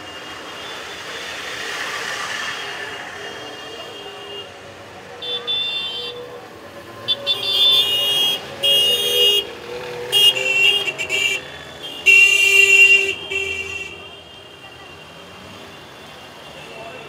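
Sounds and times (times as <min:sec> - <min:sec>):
car horns tooting: 0:05.2 - 0:06.3, 0:07.1 - 0:17.0.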